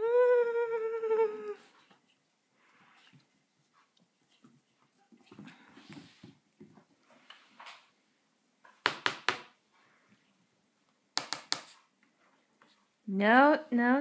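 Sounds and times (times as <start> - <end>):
sharp knocks on hard surface: 8.8 - 9.5.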